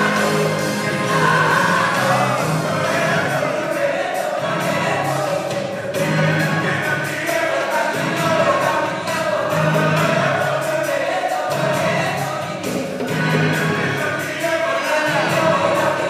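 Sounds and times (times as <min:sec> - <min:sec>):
gospel choir singing: 0:00.0 - 0:16.0.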